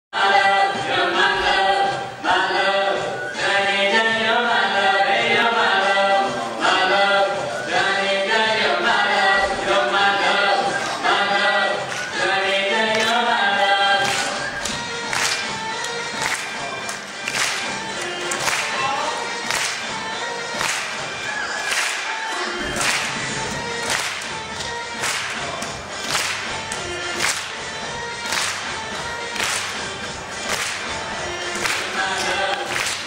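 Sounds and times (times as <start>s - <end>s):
man and woman singing: 0.2s - 14.7s, 31.0s - 33.0s.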